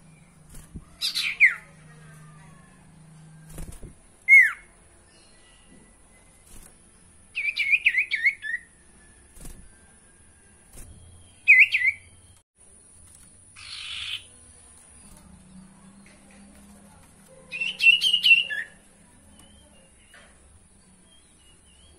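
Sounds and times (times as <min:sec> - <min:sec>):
bird chirping: 0:00.0 - 0:01.8, 0:07.2 - 0:08.9, 0:09.7 - 0:21.9.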